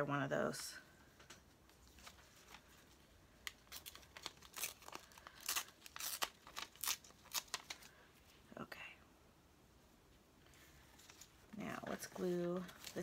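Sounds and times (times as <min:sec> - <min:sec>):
paper crackling and rustling: 0:01.7 - 0:08.0, 0:10.8 - 0:13.0.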